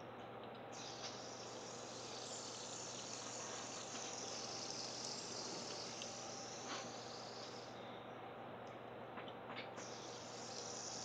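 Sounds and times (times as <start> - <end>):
fidget spinner whirring: 0.7 - 7.8, 9.6 - 11.0.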